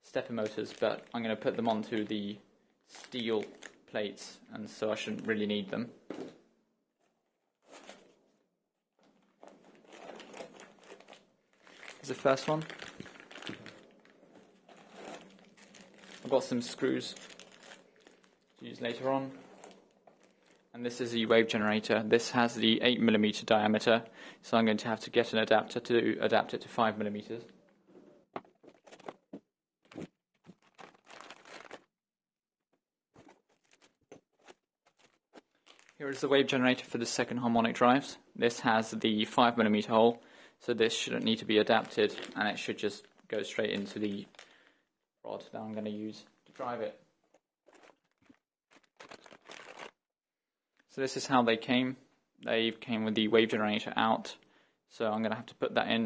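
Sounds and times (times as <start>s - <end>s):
plastic bag crinkling: 0.4s - 2.1s, 2.9s - 3.8s, 9.1s - 20.7s, 29.9s - 31.9s, 33.2s - 36.8s, 41.2s - 44.6s, 47.7s - 50.0s.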